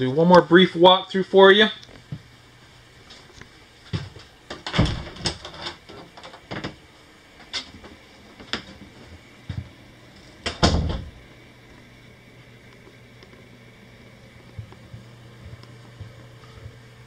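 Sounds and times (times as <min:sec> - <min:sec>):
footsteps on hollow floor: 0:03.0 - 0:04.4, 0:07.7 - 0:10.3, 0:14.4 - 0:16.8.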